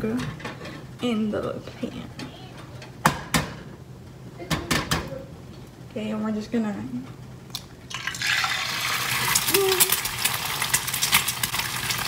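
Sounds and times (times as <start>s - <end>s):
egg sizzling in oil: 7.9s - 12.0s.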